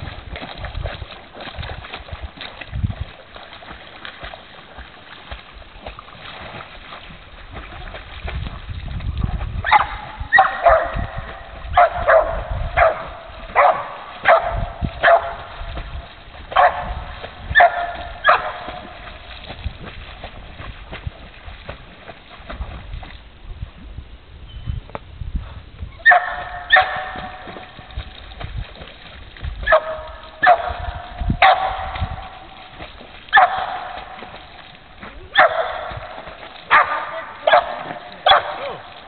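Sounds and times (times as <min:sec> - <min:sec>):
dog barking: 0:09.6 - 0:11.1, 0:11.8 - 0:15.4, 0:16.6 - 0:16.9, 0:17.5 - 0:18.8, 0:26.0 - 0:27.4, 0:29.7 - 0:30.8, 0:31.4 - 0:31.9, 0:33.3 - 0:34.0, 0:35.3 - 0:35.9, 0:36.7 - 0:38.8.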